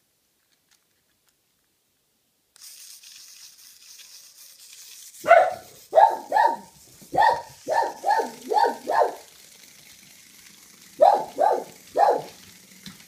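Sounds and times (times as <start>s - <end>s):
dog barking: 5.2s - 9.3s, 11.0s - 12.4s.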